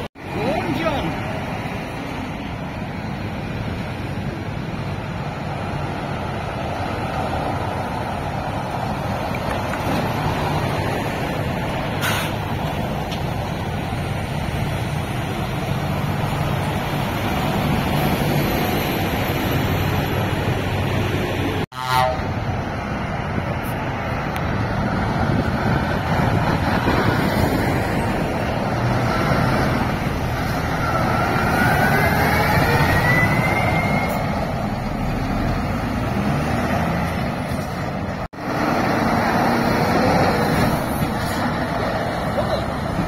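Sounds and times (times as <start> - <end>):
diesel lorry engines running: 0.0 - 43.0
horn toot: 21.7 - 22.3.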